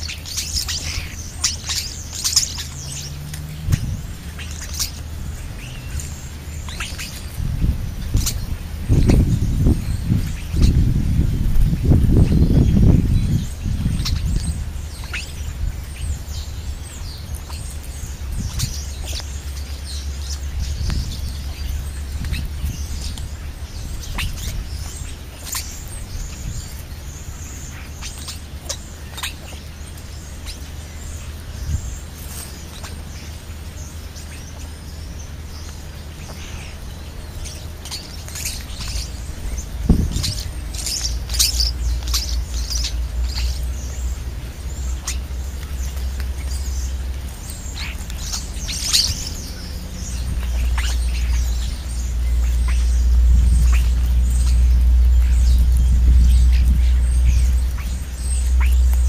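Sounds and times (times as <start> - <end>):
starlings chirping and whistling: 0.0 - 59.0
low rumble: 29.8 - 59.0.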